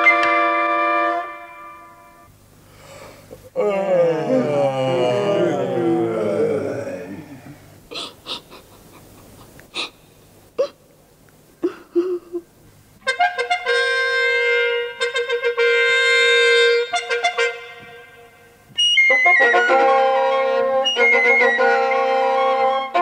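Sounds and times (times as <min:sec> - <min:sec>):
wind instrument playing: 0:00.0 - 0:02.3, 0:13.0 - 0:17.9, 0:18.8 - 0:23.0.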